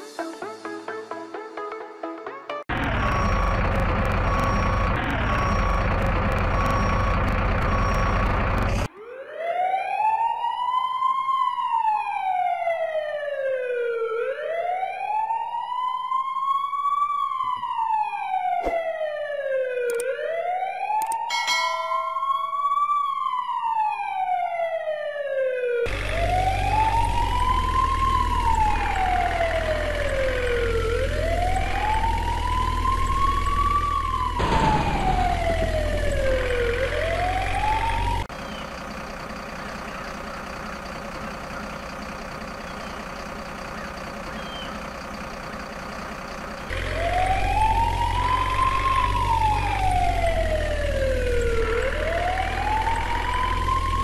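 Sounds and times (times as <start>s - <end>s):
fire engine siren wailing: 2.7s - 54.0s
low engine rumble: 25.9s - 54.0s.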